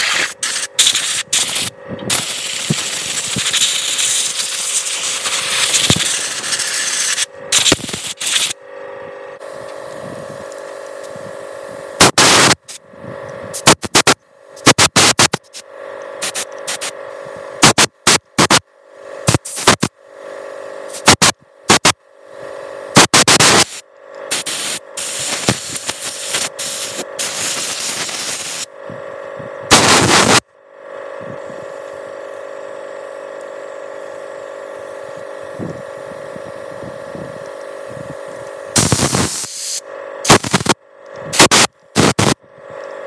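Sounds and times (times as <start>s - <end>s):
compressed air blasts: 0.0s - 8.6s, 11.9s - 12.8s, 13.5s - 28.7s, 29.7s - 30.4s, 38.2s - 42.4s
steady hum: 0.0s - 43.0s.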